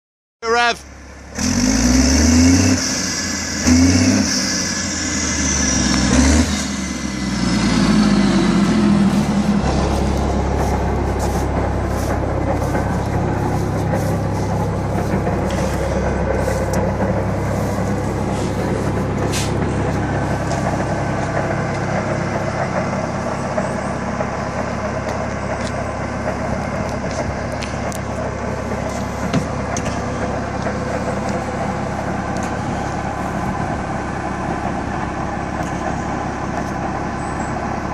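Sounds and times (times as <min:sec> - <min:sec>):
diesel engine revving: 0:00.7 - 0:37.9.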